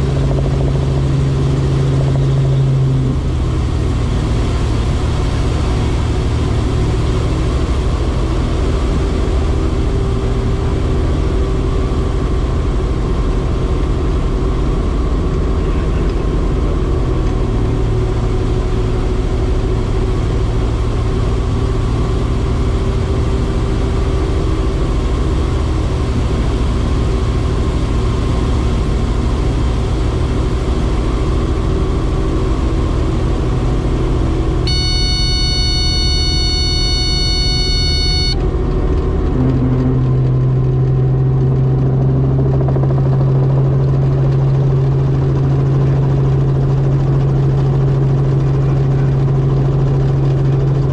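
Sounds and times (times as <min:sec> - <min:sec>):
helicopter rotor and engine: 0:00.0 - 0:08.6, 0:41.6 - 0:50.9.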